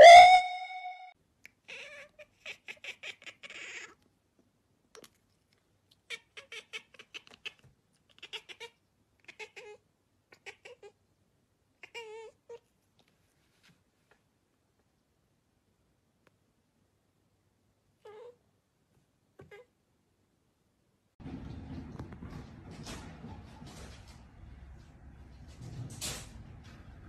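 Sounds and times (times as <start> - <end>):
cat warbling trill: 0.0 - 1.1
cat chattering: 1.6 - 4.0, 6.0 - 11.0, 11.8 - 12.6.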